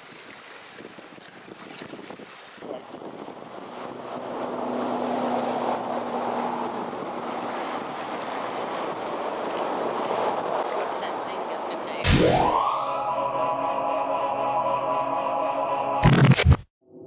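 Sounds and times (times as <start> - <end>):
motorboat engine hum: 0.0 - 12.0
wind on microphone: 0.0 - 12.0
rushing water: 0.0 - 13.1.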